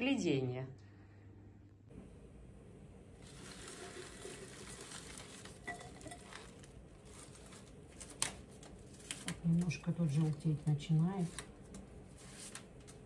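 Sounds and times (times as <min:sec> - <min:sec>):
rose stems and leaves rustling: 0:03.2 - 0:11.5.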